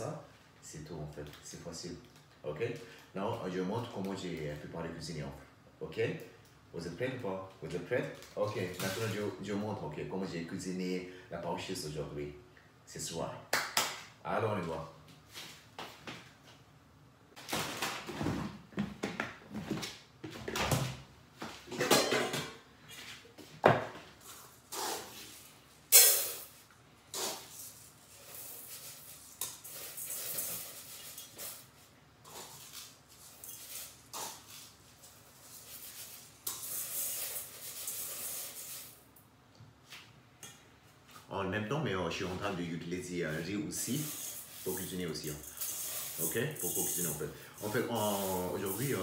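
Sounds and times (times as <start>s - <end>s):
cookware clattering: 21.7s - 22.6s.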